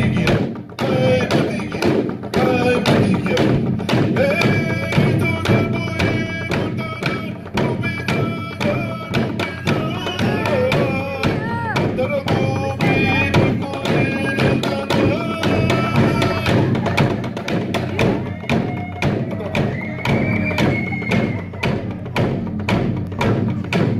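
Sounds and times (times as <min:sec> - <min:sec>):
group singing: 0:00.0 - 0:22.3
steady drumbeat: 0:00.0 - 0:23.9.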